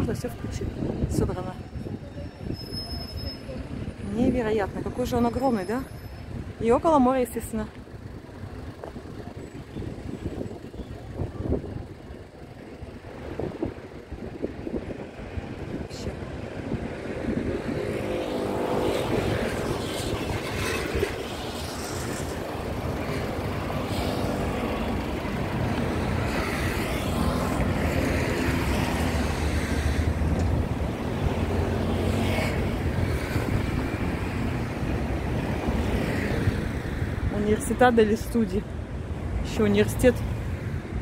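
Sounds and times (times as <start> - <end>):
vehicles passing: 0.0 - 41.0
heavy engine rumble: 7.7 - 17.5, 19.1 - 28.2.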